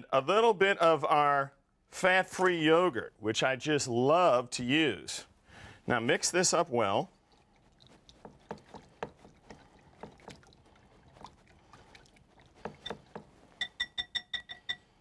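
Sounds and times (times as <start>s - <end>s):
whisk swishing in glass bowl: 7.0s - 13.9s
whisk tapping on glass: 7.8s - 10.6s, 12.5s - 15.0s.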